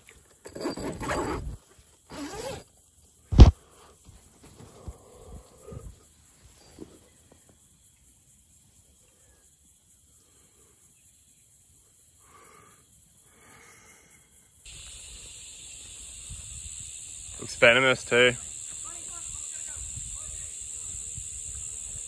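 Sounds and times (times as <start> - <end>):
steady high hiss: 7.6 - 22.0.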